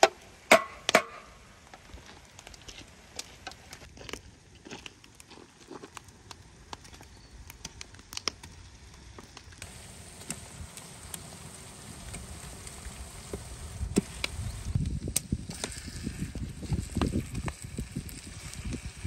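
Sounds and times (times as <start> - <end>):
wood fire crackling and popping: 0.1 - 19.0
meat sizzling in a pot: 9.6 - 19.0.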